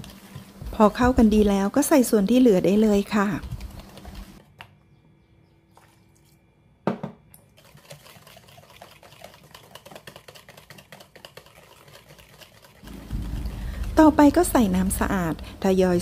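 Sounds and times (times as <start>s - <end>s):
whisk beating mixture in bowl: 2.6s - 4.4s, 7.6s - 15.8s.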